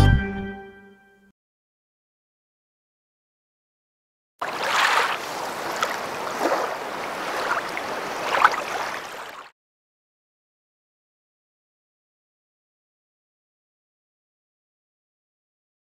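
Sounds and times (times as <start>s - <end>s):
rushing splashy water effect: 4.4s - 9.5s.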